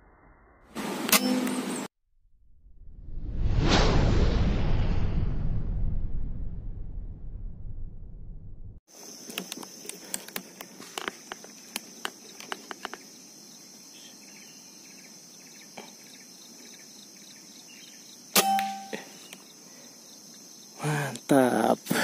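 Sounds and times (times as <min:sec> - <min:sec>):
crickets chirping: 0:08.9 - 0:22.0
air rifle shot: 0:18.4 - 0:18.9.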